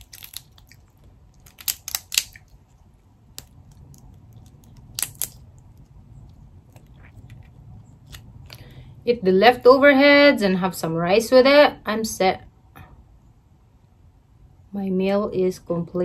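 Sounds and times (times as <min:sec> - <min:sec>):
crab shell cracking: 0:00.0 - 0:08.7.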